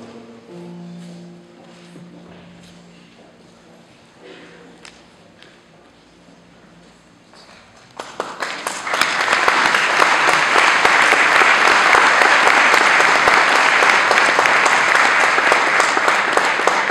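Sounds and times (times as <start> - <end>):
congregation applauding: 7.8 - 16.9.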